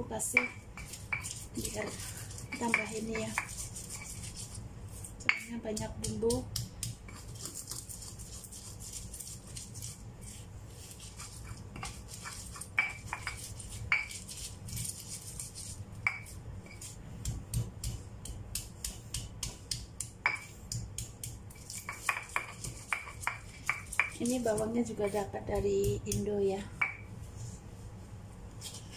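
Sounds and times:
stone pestle pounding in mortar: 16.0 - 27.0.

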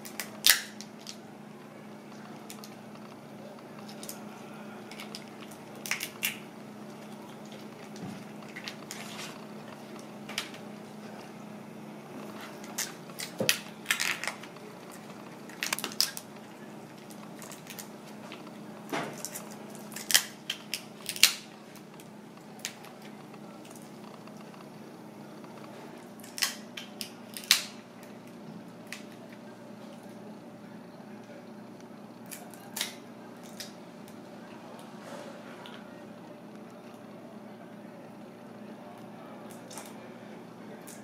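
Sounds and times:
prawn shells cracking and snapping: 0.0 - 1.2, 2.4 - 10.7, 12.2 - 24.7, 25.4 - 29.4, 32.2 - 34.2, 39.0 - 40.0, 40.8 - 41.0.

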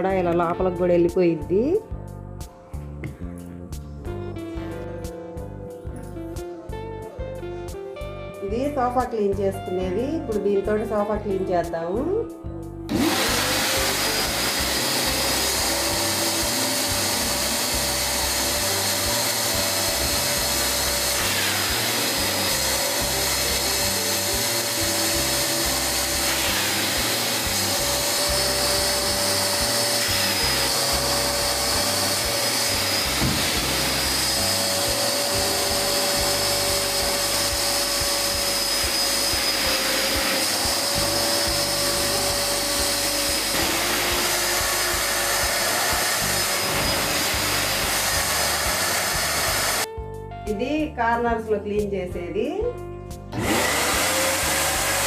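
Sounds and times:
vacuum cleaner motor whine: 12.9 - 49.9, 53.3 - 55.0.

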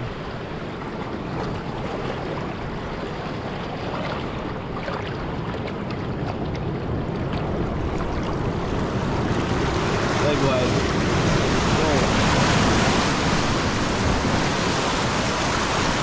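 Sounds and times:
water washing over rocks: 0.0 - 16.0
small splashes: 0.8 - 11.0.

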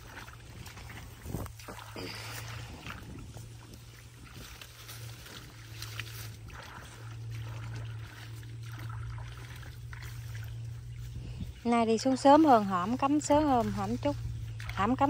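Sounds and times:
low hum: 0.0 - 15.0
water sloshing and splashing: 0.0 - 15.0.

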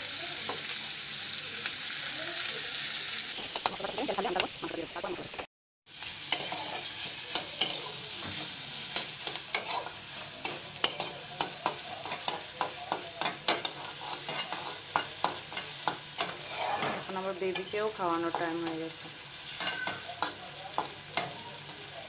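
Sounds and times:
oil sizzling in a frying pan: 0.0 - 22.0
utensil scraping a pan: 6.3 - 8.6, 9.3 - 11.1, 13.2 - 18.6.

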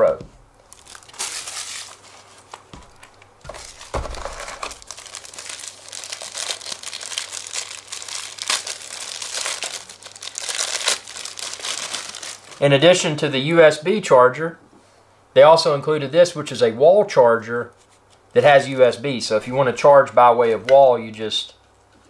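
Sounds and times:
plastic bag crinkling: 0.6 - 12.9.

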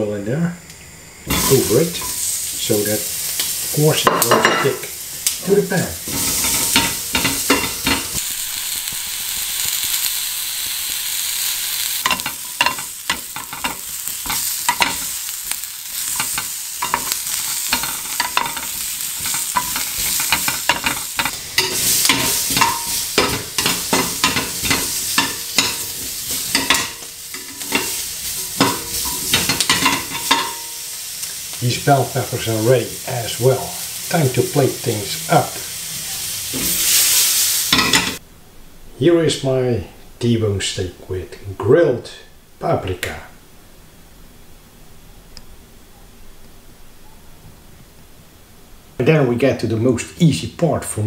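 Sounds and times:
peppers sizzling in pan: 0.6 - 38.2
metal tongs scraping pan: 1.3 - 4.8, 5.4 - 8.2, 12.0 - 31.4, 36.0 - 38.2.

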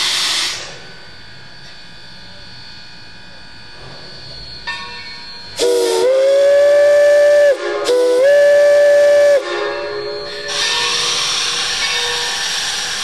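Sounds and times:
steam locomotive whistle blasts: 5.5 - 13.0.

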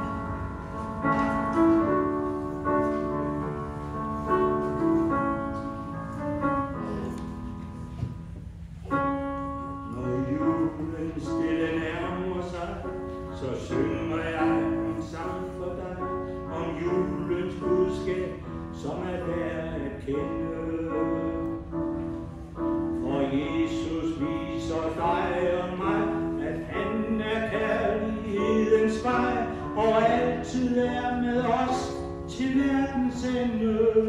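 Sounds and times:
keyboard accompaniment: 0.0 - 34.0
man singing into a microphone: 9.9 - 21.8, 23.0 - 34.0.

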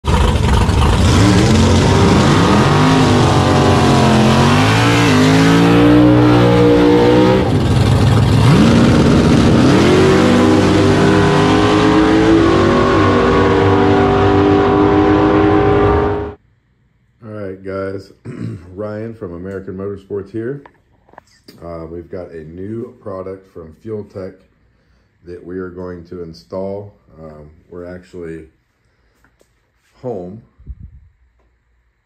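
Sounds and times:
drag car engine revving: 0.0 - 16.4
drag car launching: 0.0 - 16.4.

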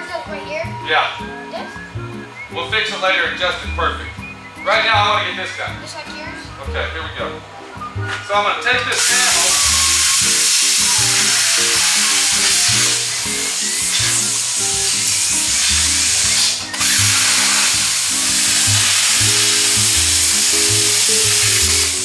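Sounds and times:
background music with bass line: 0.0 - 22.0
plasma cutter hissing: 8.9 - 22.0.

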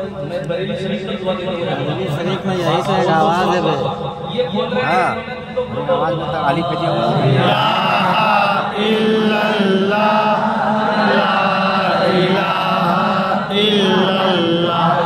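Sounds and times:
man chanting: 11.1 - 15.0.

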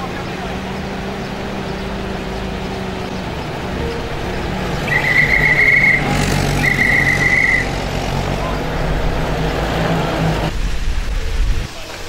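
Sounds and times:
high steady tone: 0.0 - 9.6
jeep engines running: 0.0 - 10.7.

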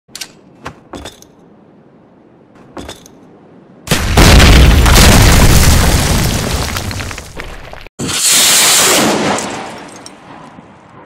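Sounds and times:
grenade explosion with deep rumble: 3.9 - 7.8.

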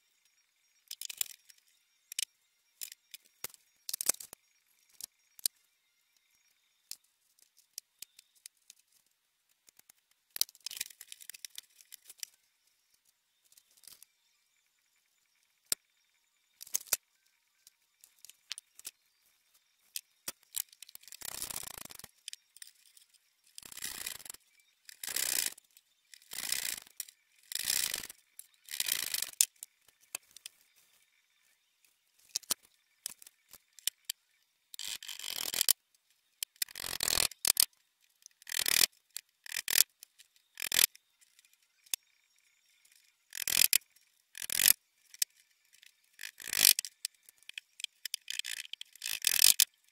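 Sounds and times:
particleboard parts scraping: 23.6 - 25.6, 26.2 - 28.1, 28.7 - 29.5, 34.8 - 35.7, 38.5 - 38.9, 39.5 - 39.8, 40.6 - 40.9, 43.4 - 43.8, 44.4 - 45.2, 46.2 - 47.0, 48.0 - 49.6
sharp clicks: 38.4 - 38.9, 39.5 - 39.9, 40.6 - 40.9, 43.3 - 43.8, 44.4 - 45.3, 46.2 - 49.7.

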